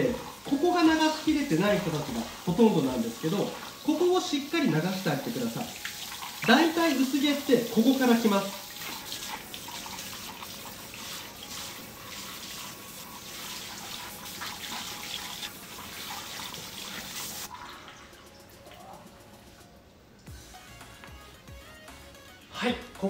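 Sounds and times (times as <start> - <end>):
hand sprayer water spraying on hair: 0.0 - 17.5.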